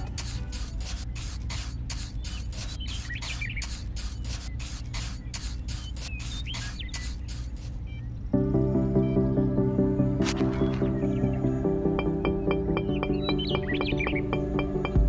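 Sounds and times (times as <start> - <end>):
trowel scraping wet cement: 0.0 - 7.7
steady low hum: 0.0 - 15.0.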